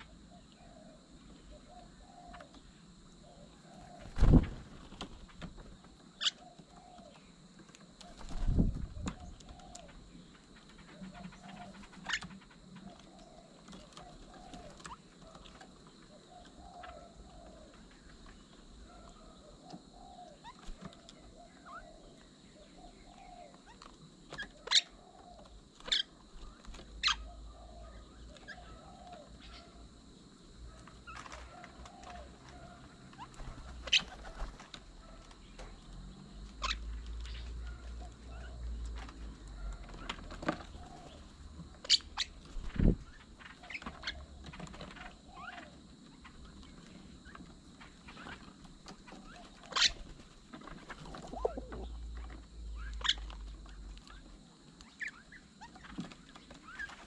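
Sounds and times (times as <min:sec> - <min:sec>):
soft bird calls: 0:00.0 - 0:57.0
wind rumble on microphone: 0:08.3 - 0:09.4, 0:42.6 - 0:43.2.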